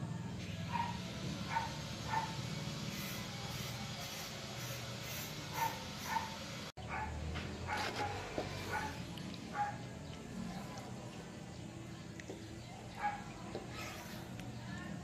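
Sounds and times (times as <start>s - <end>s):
dog barking: 0.7s - 2.4s, 5.5s - 9.8s, 13.0s - 13.3s.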